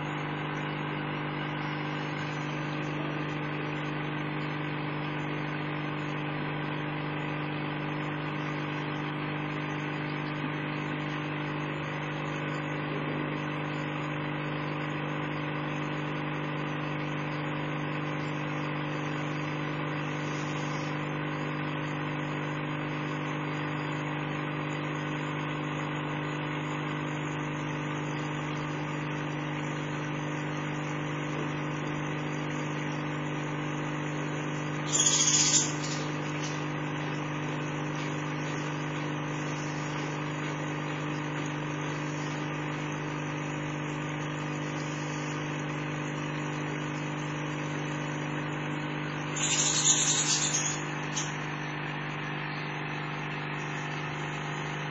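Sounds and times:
steady machine hum: 0.0s - 15.0s, 28.1s - 42.8s, 48.4s - 54.9s.

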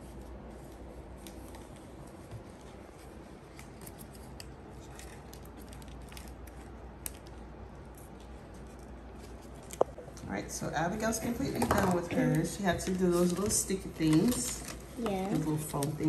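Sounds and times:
paper and foam rustling: 0.0s - 9.9s.

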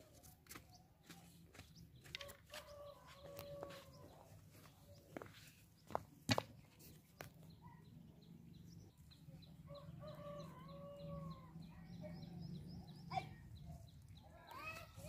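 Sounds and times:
faint hens clucking: 2.0s - 6.0s.

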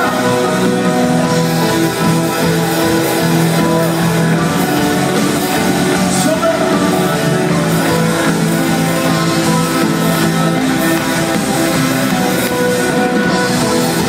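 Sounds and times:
drums: 0.0s - 14.0s
electric guitar: 0.0s - 14.0s
synthesizers: 0.0s - 14.0s.

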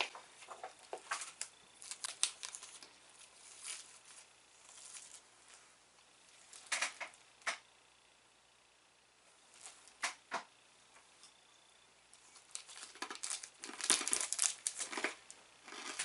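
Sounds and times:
plastic wrapper crinkling: 0.0s - 5.6s, 12.2s - 16.0s.

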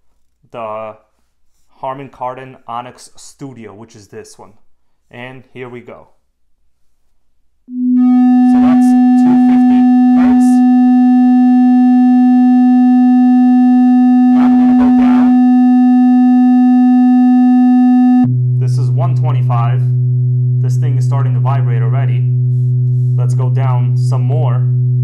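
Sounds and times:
steady sine test tone: 7.7s - 25.0s.

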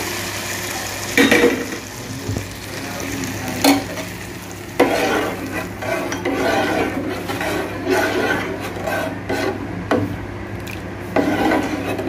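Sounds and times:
hot ghee sizzling: 0.0s - 9.7s, 11.1s - 12.0s
metal spoon stirring and scraping: 4.8s - 9.6s, 11.0s - 12.0s.

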